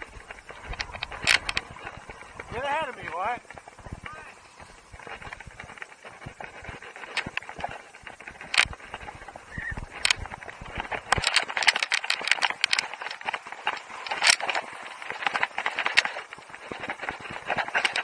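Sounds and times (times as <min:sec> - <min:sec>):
skis scraping hard snow: 0:00.0 - 0:18.0
sharp clicks clattering: 0:00.3 - 0:04.2.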